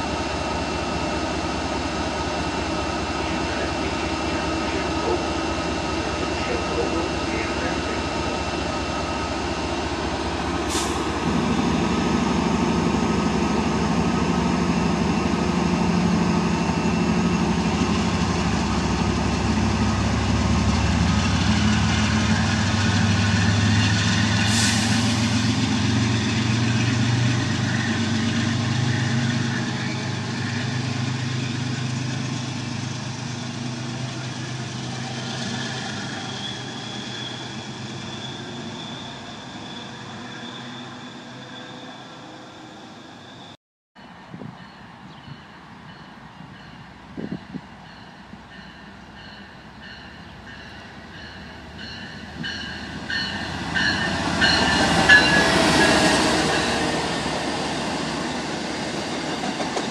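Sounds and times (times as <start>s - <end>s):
locomotive engine drone: 0.0s - 41.6s.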